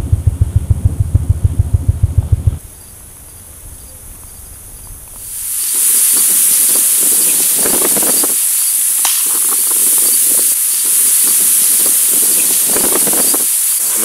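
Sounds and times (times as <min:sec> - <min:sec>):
faint pulsing chirp: 0:00.0 - 0:14.0
high-pitched insect chorus: 0:02.6 - 0:14.0
sharp click: 0:09.0 - 0:09.8.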